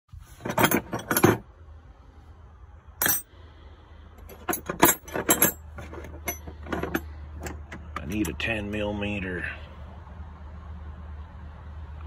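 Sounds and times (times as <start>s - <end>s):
metal sockets clinking: 0.3s - 1.4s, 3.0s - 3.3s, 4.2s - 8.4s.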